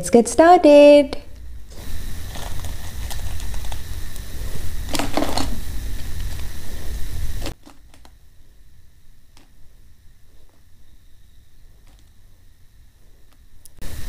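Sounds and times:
background hiss and low rumble: 0.0 - 14.0
dried chillies clicking and crackling: 2.2 - 4.3.

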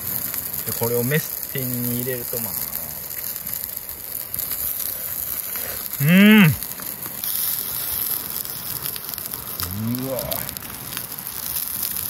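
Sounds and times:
steady hiss: 0.0 - 12.0
man humming mm: 6.0 - 6.6, 9.6 - 10.5.

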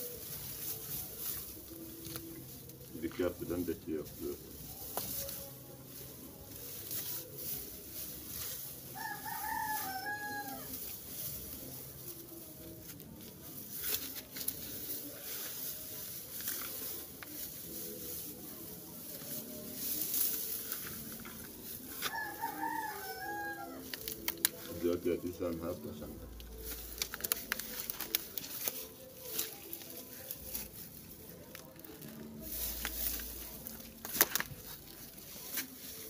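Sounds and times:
dry grass rustling and crackling: 0.0 - 36.0
rooster crowing: 9.0 - 10.7, 22.0 - 23.8.

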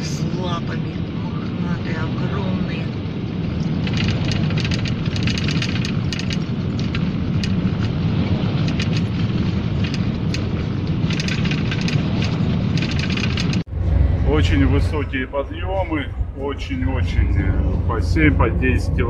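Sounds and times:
van road and engine rumble: 0.0 - 19.0
light rattles and ticks: 3.5 - 13.7.

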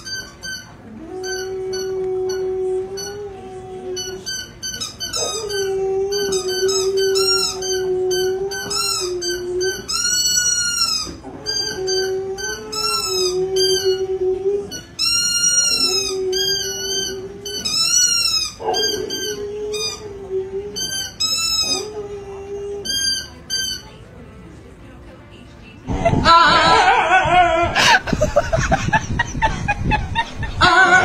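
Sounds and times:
higher wavering howls: 0.9 - 4.5
dog howling: 0.9 - 23.3, 26.2 - 27.8, 30.6 - 31.0.

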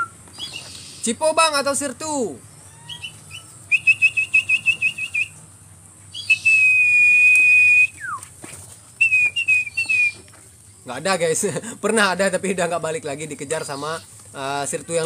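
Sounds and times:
person whistling a tune: 3.7 - 5.3, 6.2 - 8.2, 9.0 - 10.2.

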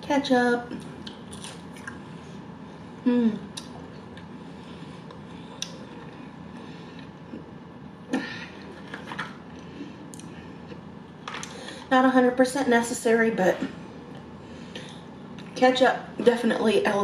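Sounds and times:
person chewing with wet clicks: 0.7 - 2.1, 3.5 - 4.4, 5.0 - 6.3, 10.1 - 10.8
person humming mm: 3.0 - 3.6.

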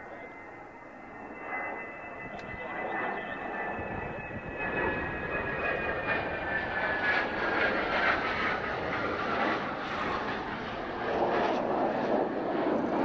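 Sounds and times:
jet engine whine: 0.0 - 13.0.

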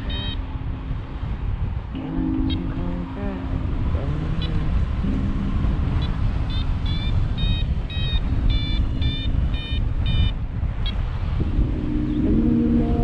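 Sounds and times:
variometer high-pitched beeps: 0.0 - 0.8, 2.0 - 3.0, 4.4 - 13.0
wind noise on microphone: 0.0 - 13.0.

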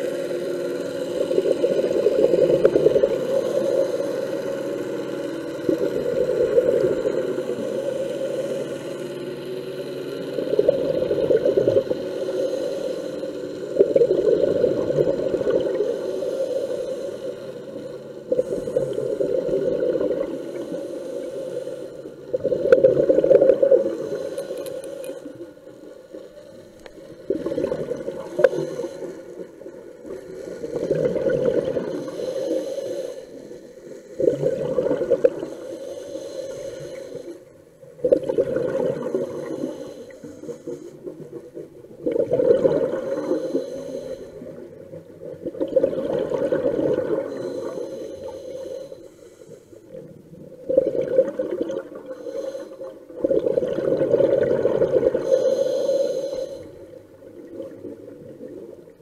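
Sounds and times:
diver breathing through regulator: 0.0 - 57.7
exhaled bubbles rushing: 1.1 - 3.4, 13.7 - 15.8, 22.3 - 24.1, 27.0 - 28.8, 30.1 - 32.1, 34.2 - 35.5, 37.9 - 39.6, 41.1 - 43.4, 44.4 - 47.5, 50.0 - 52.2, 53.2 - 55.2.

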